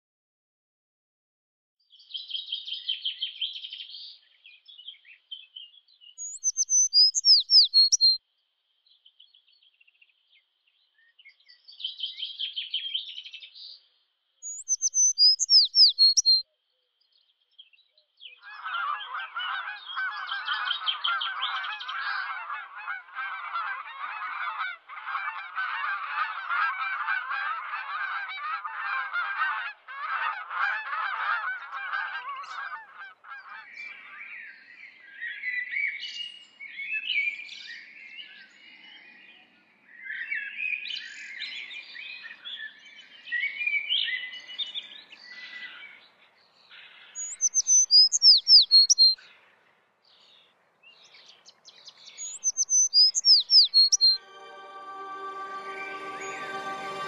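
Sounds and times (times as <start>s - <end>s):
songbird trills and whistles: 6.2s - 8.2s, 14.4s - 16.4s, 47.1s - 49.2s, 51.7s - 54.2s
flock of waterbirds honking: 18.5s - 33.9s, 54.1s - 57.0s.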